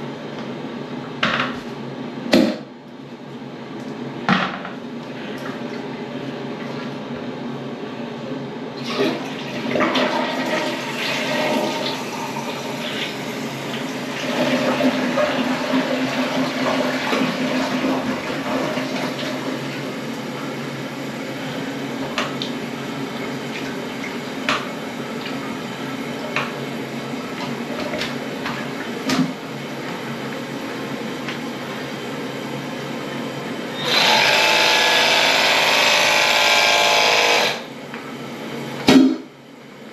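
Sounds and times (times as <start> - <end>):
water running in a toilet: 8.8 - 38.9
drain gun motor running: 10.0 - 37.8.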